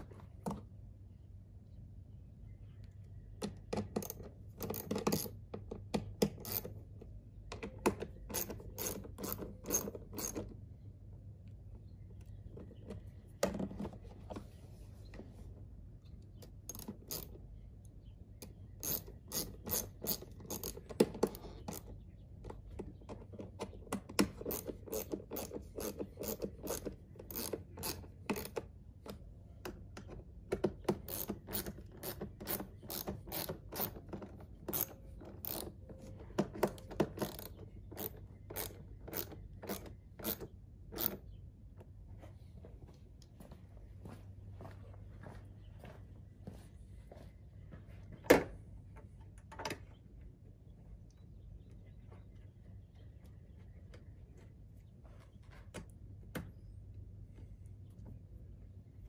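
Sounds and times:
hand ratchet clicking: 8.3 - 10.4, 18.8 - 21.9, 24.4 - 28.6, 31.1 - 34.0, 34.7 - 35.7.

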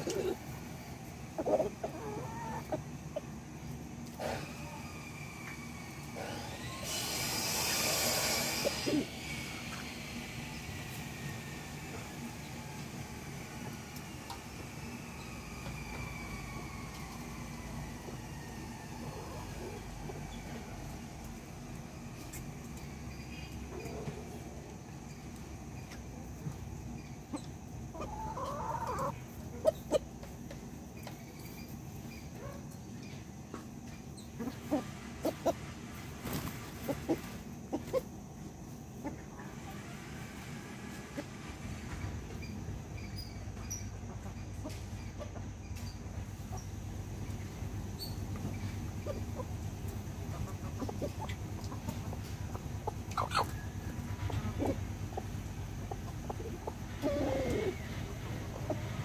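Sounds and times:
chickens clucking: 0.0 - 59.0
loud chicken call: 1.4 - 2.8.

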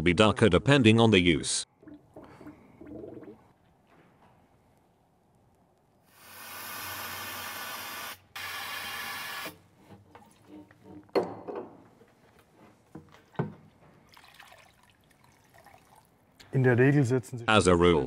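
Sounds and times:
oil splashing: 1.7 - 3.6, 14.0 - 16.3
steady hiss: 6.0 - 9.4.

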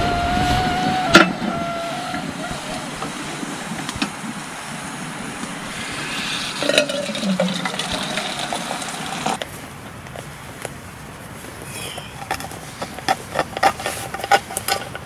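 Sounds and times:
hot water pouring into tin can: 5.4 - 9.4
ringing tone of filling can: 5.7 - 9.4.

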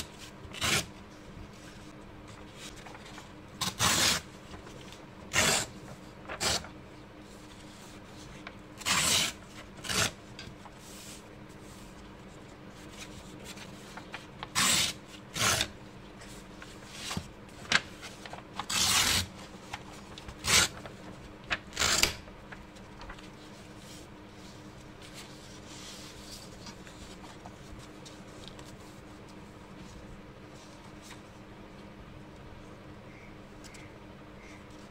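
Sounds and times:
paper tearing: 0.5 - 0.9, 3.6 - 4.3, 6.3 - 6.7, 8.8 - 10.2, 14.4 - 15.7, 18.6 - 19.3, 20.4 - 20.9, 21.7 - 22.2.

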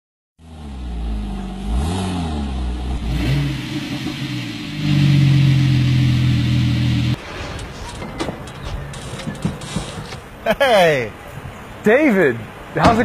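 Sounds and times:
car engine revving: 0.4 - 7.2.

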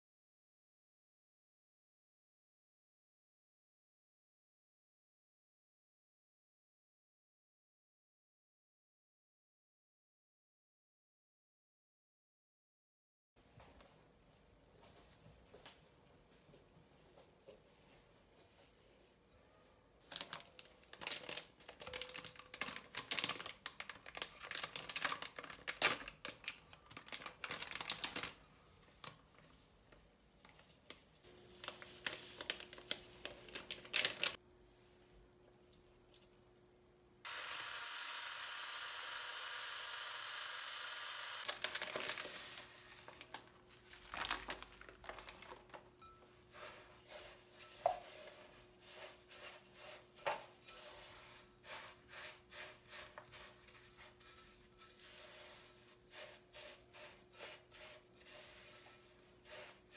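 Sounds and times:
plastic bag rustling: 20.0 - 34.4, 41.4 - 56.5
spatula stirring thick mixture: 46.0 - 59.9.

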